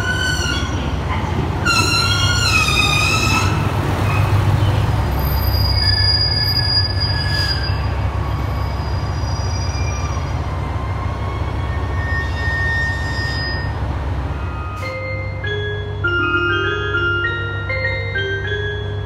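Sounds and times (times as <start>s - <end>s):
brake and wheel squeals: 0.0s - 1.0s, 1.6s - 13.8s
diesel railcar rumbling: 0.0s - 19.0s.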